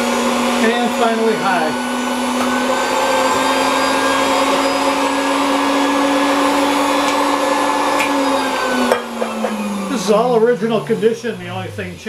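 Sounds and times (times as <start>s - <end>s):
mixer motor whine: 0.0s - 12.0s.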